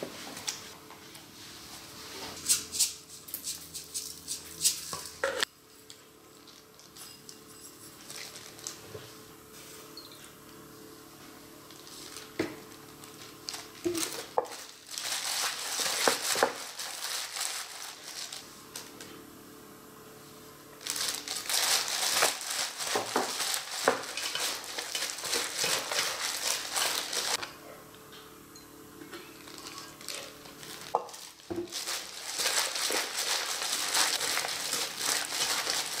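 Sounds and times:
gloved hands mixing salad crinkling: 0:08.0 - 0:08.9, 0:11.6 - 0:19.0, 0:20.8 - 0:27.5, 0:29.4 - 0:36.0.

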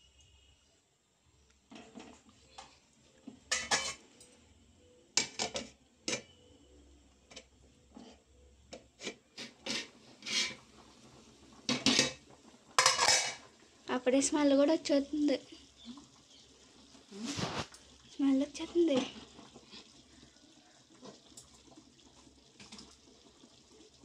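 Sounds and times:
metal pot clanks and scrapes: 0:03.4 - 0:04.3, 0:05.2 - 0:06.4, 0:07.3 - 0:10.8, 0:11.6 - 0:13.5.

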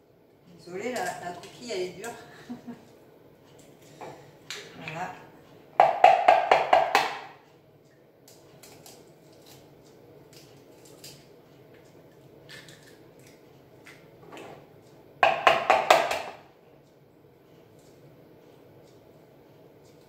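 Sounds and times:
egg tapping against plastic bowl: 0:05.8 - 0:07.3, 0:15.2 - 0:16.4.

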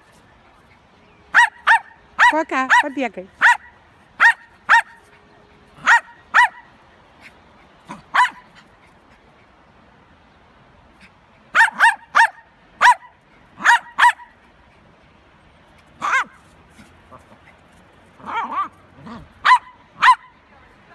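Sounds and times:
small dogs yapping: 0:01.3 - 0:05.1, 0:05.8 - 0:06.7, 0:07.8 - 0:08.9, 0:11.5 - 0:14.4, 0:16.0 - 0:20.3.

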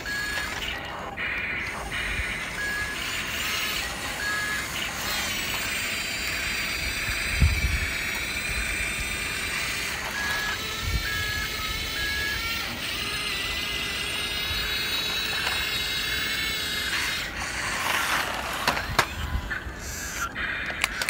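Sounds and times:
short electronic beeps: 0:00.0 - 0:05.4, 0:09.5 - 0:12.4
toy motors and gears whirring: 0:00.0 - 0:21.0.

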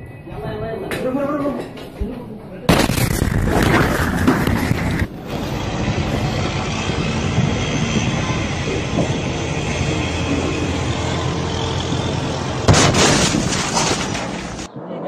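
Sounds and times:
mechanical rumble: 0:02.8 - 0:14.7.

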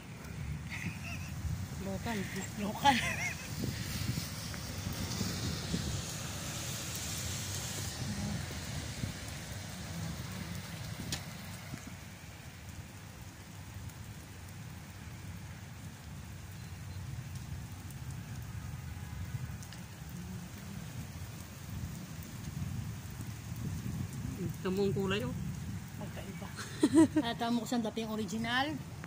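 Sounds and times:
steady rain on paving: 0:00.0 - 0:29.0.

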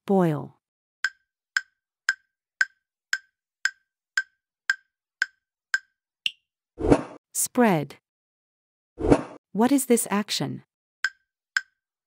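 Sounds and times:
woody timer ticks: 0:01.0 - 0:06.4, 0:11.0 - 0:11.8.

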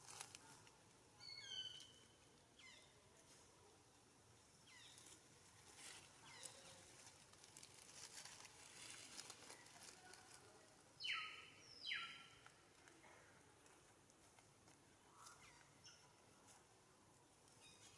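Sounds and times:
dry leaves crackling: 0:00.0 - 0:02.2, 0:04.7 - 0:15.6.

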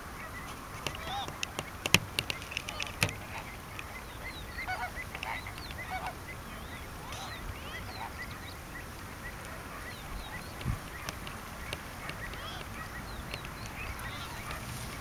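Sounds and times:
flamingos honking: 0:00.0 - 0:15.0.

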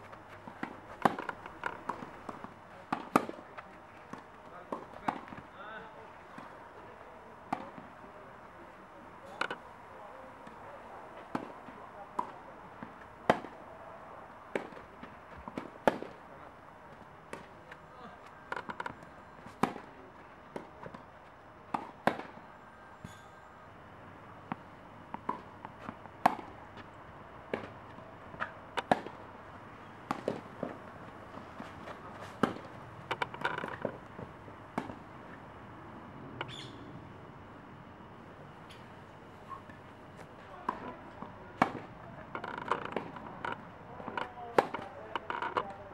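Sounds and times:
tennis balls struck and bouncing: 0:00.0 - 0:05.5, 0:06.2 - 0:07.9, 0:11.2 - 0:13.6, 0:14.5 - 0:16.2, 0:18.5 - 0:22.4, 0:24.4 - 0:29.3, 0:29.9 - 0:35.4, 0:39.5 - 0:45.9.

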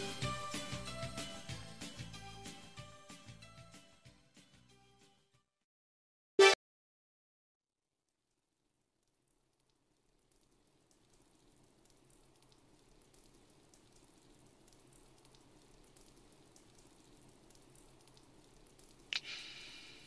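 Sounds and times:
crackling hiss: 0:09.5 - 0:20.0.

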